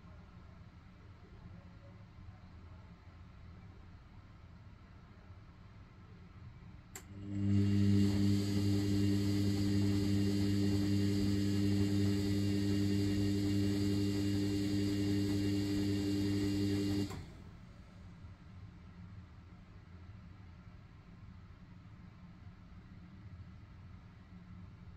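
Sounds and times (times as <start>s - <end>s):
washing machine motor hum: 7.0s - 17.5s.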